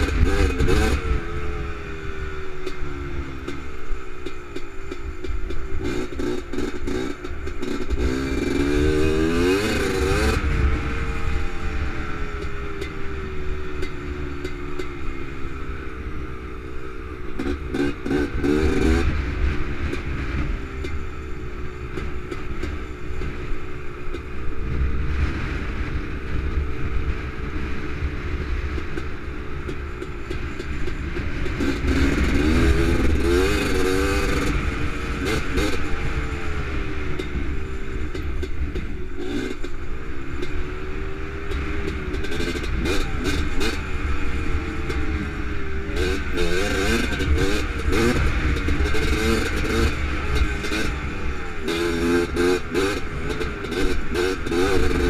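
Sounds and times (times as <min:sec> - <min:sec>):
quad engine revving: 0:00.0 - 0:01.7, 0:05.6 - 0:16.4, 0:17.2 - 0:20.3, 0:31.1 - 0:55.0
clatter: 0:02.5 - 0:16.2, 0:17.2 - 0:55.0.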